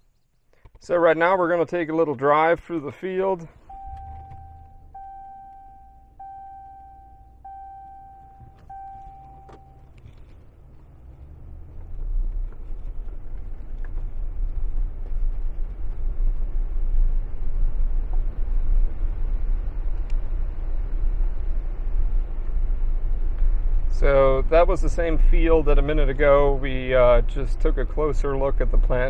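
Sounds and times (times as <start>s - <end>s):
truck rumbling on dirt lane: 1.0s - 29.0s
dashboard warning chime: 3.6s - 10.0s.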